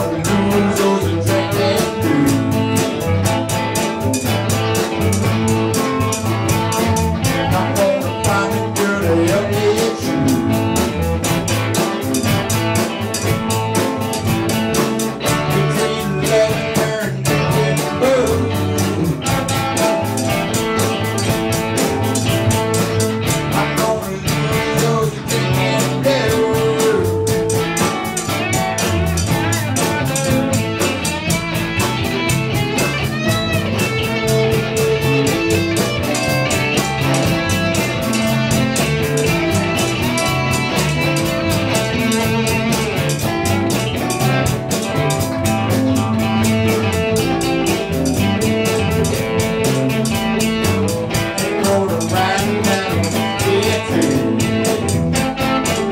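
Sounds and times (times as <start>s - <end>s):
man singing: 0.0s - 3.0s, 7.2s - 11.0s, 15.2s - 19.5s, 23.5s - 27.4s, 51.3s - 54.7s
bass guitar: 0.0s - 55.9s
electric guitars: 0.0s - 55.9s
keyboard: 0.0s - 55.9s
steady drum beat: 0.0s - 55.9s.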